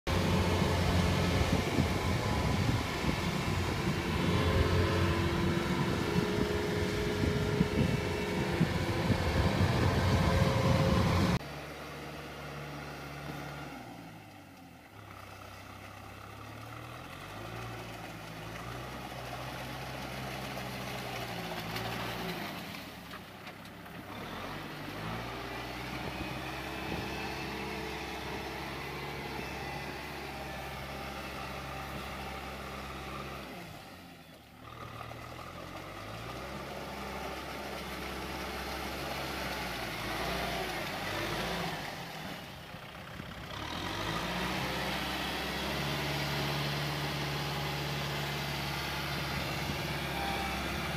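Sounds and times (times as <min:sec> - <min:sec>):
tractor engine working hard: 0:00.0 - 0:50.9
loud machine engine running: 0:00.1 - 0:11.4.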